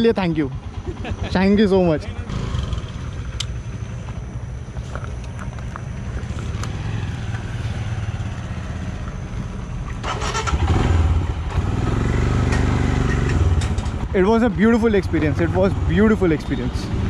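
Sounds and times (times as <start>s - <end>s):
motorcycle engine riding off: 2.1s - 4.2s, 5.6s - 17.0s.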